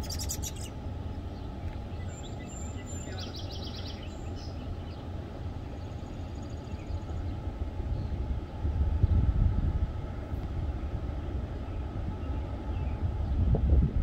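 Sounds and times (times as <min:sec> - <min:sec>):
birds chirping: 0:00.0 - 0:09.2
low outdoor rumble: 0:00.0 - 0:14.0.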